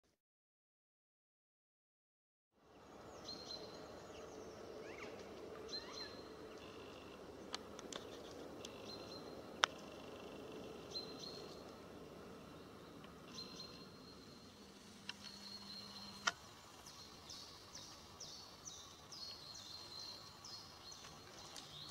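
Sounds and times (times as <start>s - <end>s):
low steady hiss: 2.6s - 21.9s
small birds calling: 2.8s - 21.9s.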